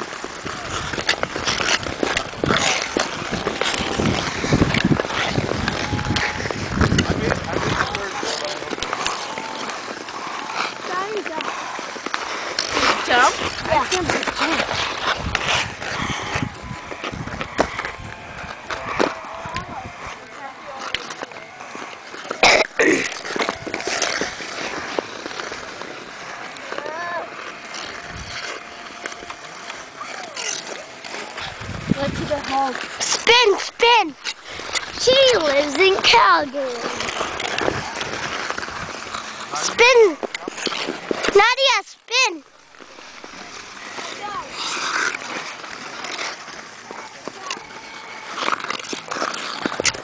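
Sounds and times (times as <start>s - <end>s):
ice skates scraping on ice: 0.0s - 50.0s.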